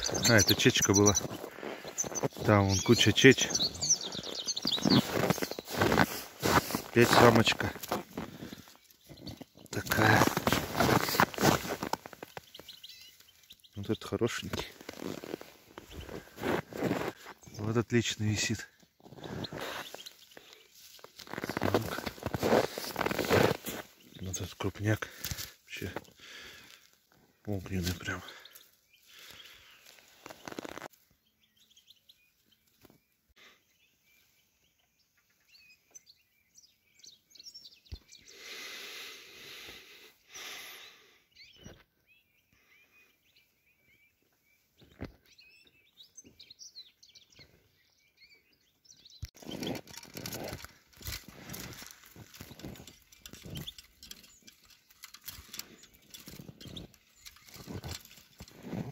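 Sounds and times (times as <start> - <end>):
rustling and crackling: 0.0 - 31.0, 49.2 - 58.9
small songbirds chirping: 0.0 - 58.9.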